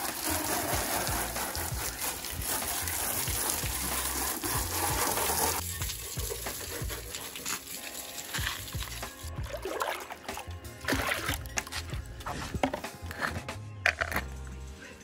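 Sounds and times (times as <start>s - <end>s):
water spraying hiss: 0.0s - 9.4s.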